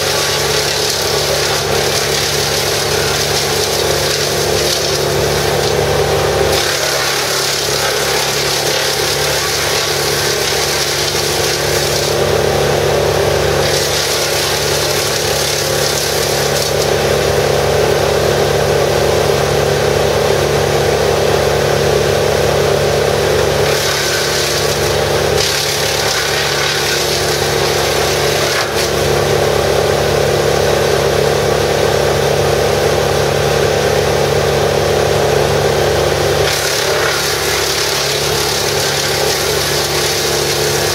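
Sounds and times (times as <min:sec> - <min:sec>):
brush chipper engine droning: 0:00.0 - 0:40.9
hiss of wood being chipped: 0:36.4 - 0:40.9.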